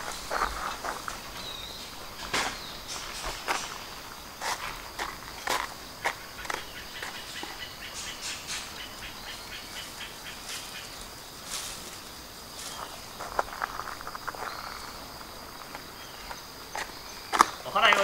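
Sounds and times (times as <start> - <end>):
footsteps crunching on sand: 0.0 - 18.0
insects chirring: 0.0 - 18.0
leafy branch swishing: 9.8 - 14.2.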